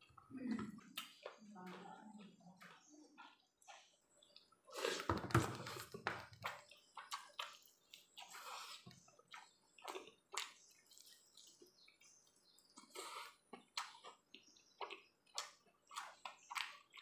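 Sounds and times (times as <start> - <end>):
person eating with wet slurping: 4.7 - 6.0, 7.0 - 11.3, 12.8 - 16.9.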